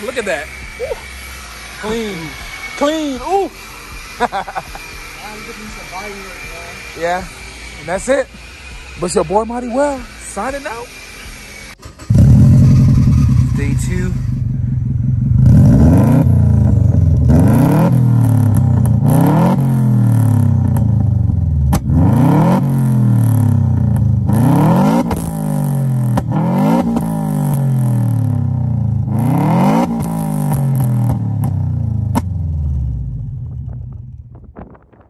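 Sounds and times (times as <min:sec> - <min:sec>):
car engine revving: 0:10.8 - 0:34.4.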